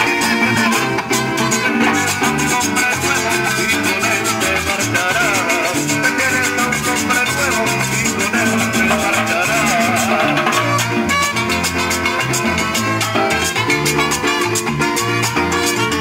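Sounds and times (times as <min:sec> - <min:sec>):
electric bass line: 0:00.0 - 0:16.0
strummed small acoustic guitar: 0:00.0 - 0:16.0
metal shaker: 0:01.8 - 0:13.4
drum and timbales strokes: 0:07.9 - 0:11.8.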